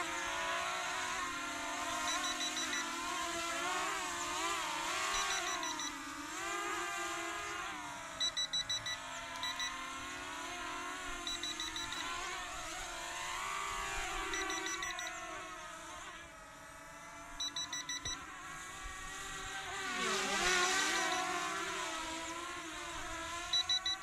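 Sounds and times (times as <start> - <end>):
drone motors whining: 0.0 - 24.0
short high beeps: 2.1 - 2.9, 5.1 - 6.0, 8.2 - 9.8, 11.3 - 12.2, 14.3 - 15.2, 17.4 - 18.2, 23.5 - 24.0.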